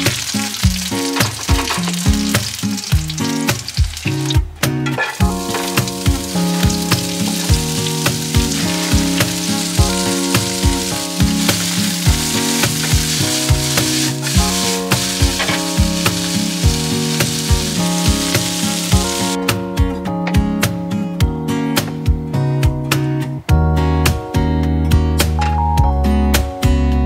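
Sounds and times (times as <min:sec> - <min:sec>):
vegetables sizzling in frying pan: 0:00.0 - 0:04.4, 0:05.2 - 0:19.4
background music with steady beat: 0:00.0 - 0:27.0.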